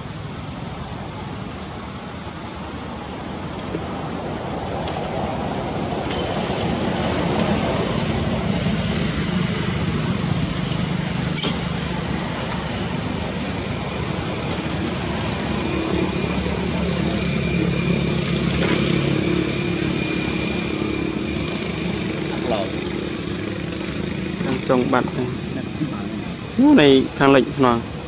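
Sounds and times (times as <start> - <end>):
road noise: 0.0 - 28.0
vehicle engine running: 8.0 - 27.1.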